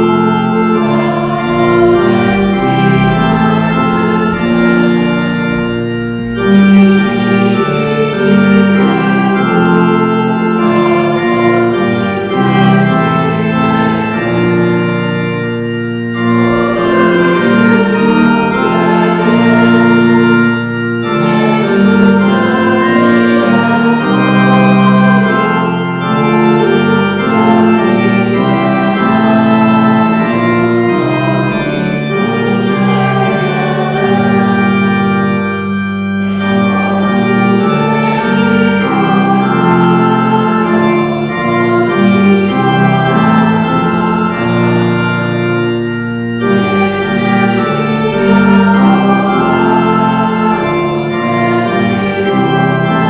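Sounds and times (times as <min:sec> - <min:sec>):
church organ playing hymn: 0:00.0 - 0:53.0.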